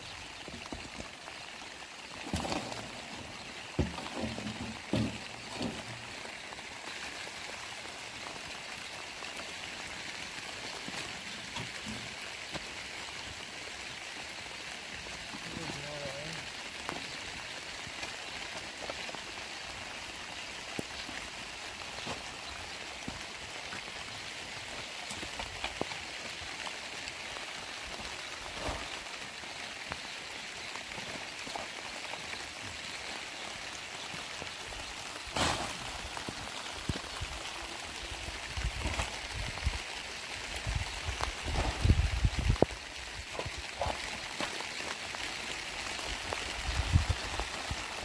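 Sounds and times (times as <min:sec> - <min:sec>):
steady rain falling: 0:00.0 - 0:48.0
shovel scraping wet earth: 0:35.3 - 0:36.2.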